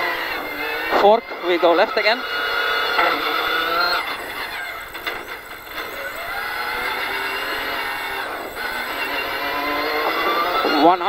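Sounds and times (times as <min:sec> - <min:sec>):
car engine revving: 0:00.0 - 0:11.0.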